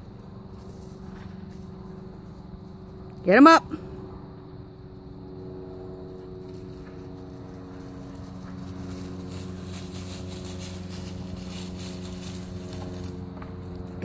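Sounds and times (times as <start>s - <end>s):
steady mechanical hum: 0.0s - 14.0s
dry leaves rustling and crunching: 6.1s - 14.0s.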